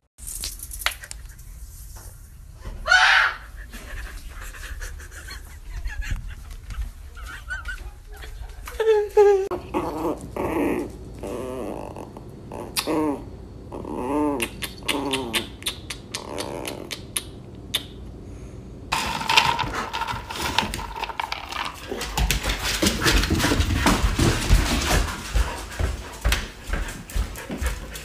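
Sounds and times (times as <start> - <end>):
puppy growling: 9.5 - 15.6, 16.2 - 17.1
scoop digging through dry kibble: 19.0 - 22.0.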